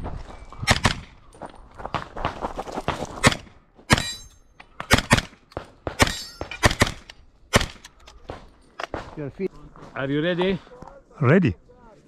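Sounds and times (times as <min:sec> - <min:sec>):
metallic ring: 0:04.0 - 0:04.5.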